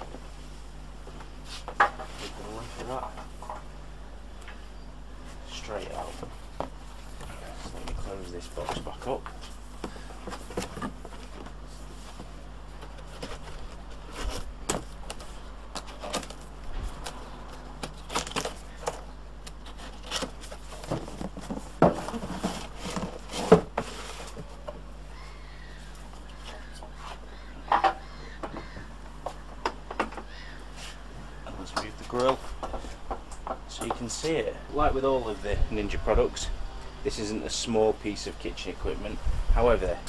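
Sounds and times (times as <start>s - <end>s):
cardboard scraping and rustling: 5.9s - 24.7s.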